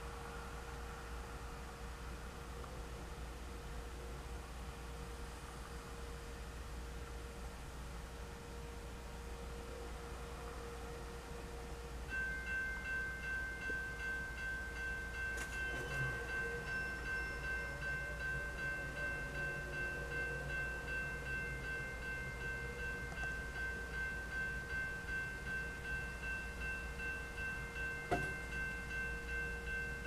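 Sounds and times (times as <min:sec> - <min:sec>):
railroad crossing bell ringing: 0:08.3 - 0:30.0.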